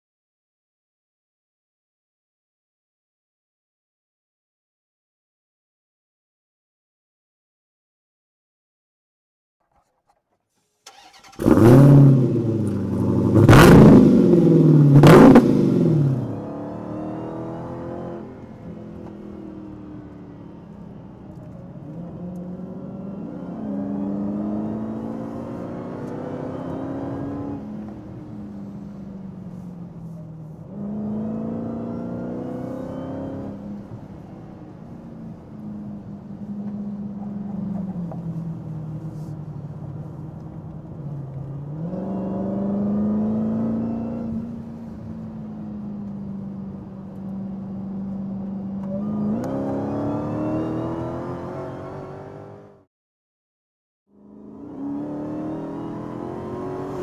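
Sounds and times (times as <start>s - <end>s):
car engine revving: 10.9s - 45.3s, 46.3s - 52.8s, 54.2s - 57.0s
car accelerating: 10.9s - 52.9s, 54.2s - 57.0s.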